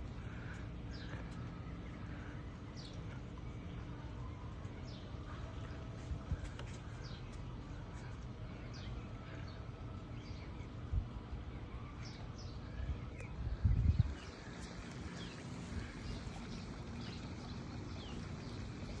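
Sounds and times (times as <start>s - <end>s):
wind rumble on microphone: 12.7s - 19.0s.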